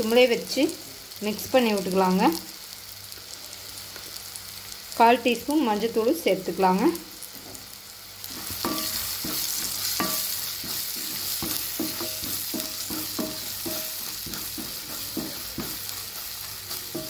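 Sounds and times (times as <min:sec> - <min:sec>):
hot oil sizzling: 0:00.0 - 0:17.0
spatula scraping and knocking pan: 0:08.3 - 0:17.0.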